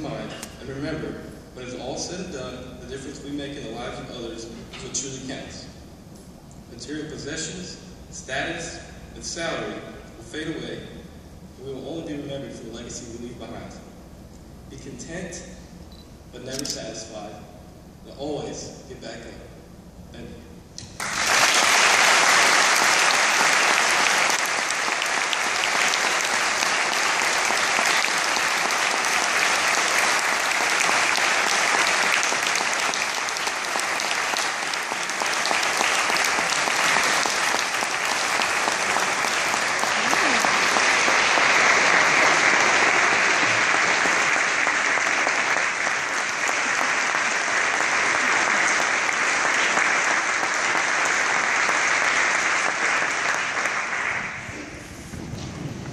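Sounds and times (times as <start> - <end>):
large audience applauding: 20.9 - 54.7.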